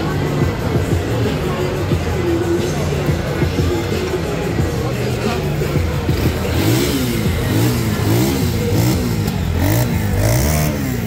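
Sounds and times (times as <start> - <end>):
motorcycle engine revving: 5.4 - 11.0.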